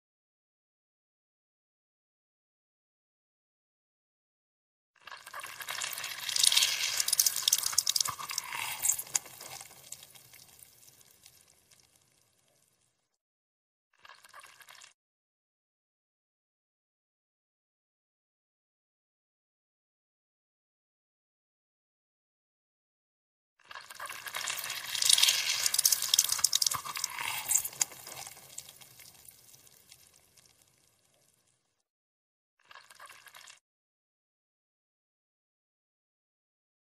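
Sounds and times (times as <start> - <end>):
strawberries squelching when crushed: 5.7 - 11.1, 24.0 - 30.1
grapefruit squelching: 24.8 - 28.7.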